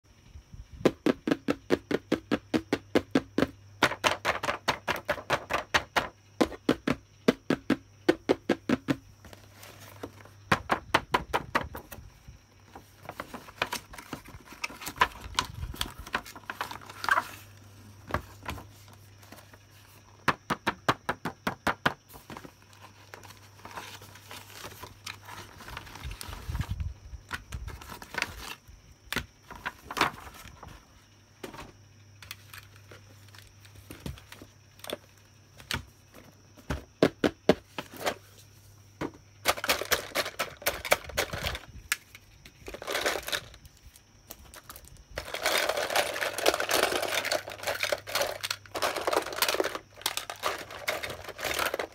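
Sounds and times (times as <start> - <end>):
fingernails tapping on packaging: 0.9 - 9.0
boxes rubbed and scratched: 45.2 - 51.9.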